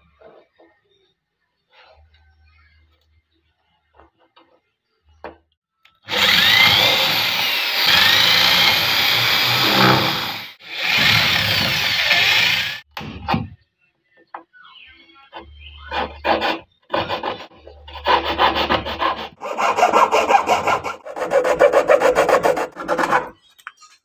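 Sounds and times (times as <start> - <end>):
electric drill boring through wood: 6.1 - 12.9.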